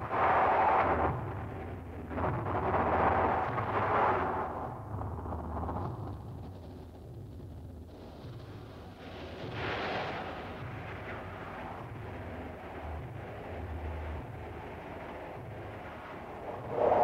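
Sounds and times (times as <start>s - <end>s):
low pulsing rumble: 16.2s - 17.0s
hissing noise: 16.4s - 17.0s.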